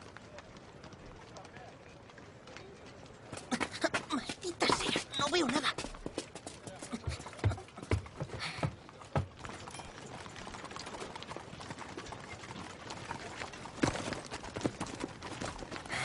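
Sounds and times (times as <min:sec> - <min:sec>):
horse hooves clip-clopping: 0:00.0 - 0:16.0.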